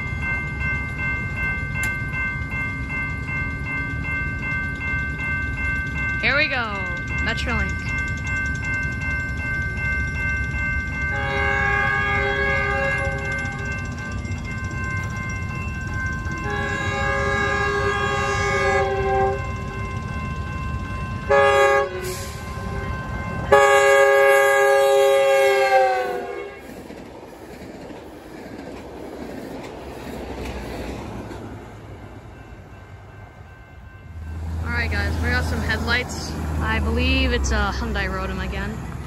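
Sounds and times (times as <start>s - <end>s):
train on rails: 0.0s - 39.0s
train horn blasts: 11.1s - 13.6s, 16.4s - 19.6s, 21.3s - 22.8s, 23.5s - 26.7s.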